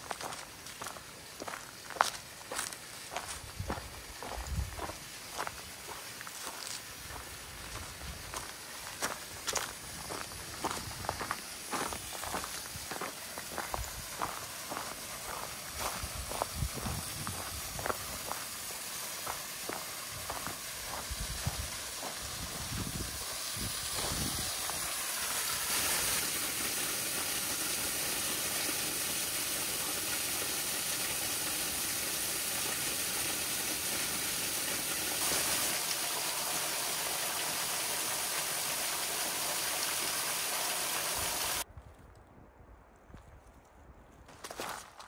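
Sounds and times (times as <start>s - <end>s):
footsteps on trail: 0.0s - 25.3s, 44.2s - 45.0s
waterfall rushing: 17.7s - 41.6s.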